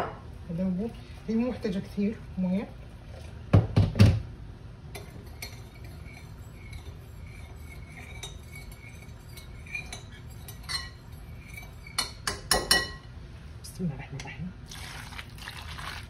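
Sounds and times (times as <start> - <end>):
utensils clinking on pot: 4.9 - 13.1.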